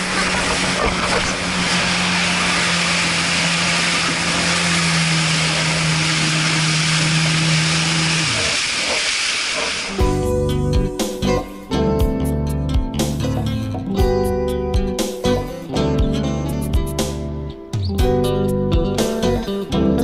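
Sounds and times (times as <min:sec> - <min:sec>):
spray and rushing water: 0:00.0 - 0:10.1
jet ski engine: 0:00.0 - 0:12.3
guitar music: 0:09.9 - 0:20.0.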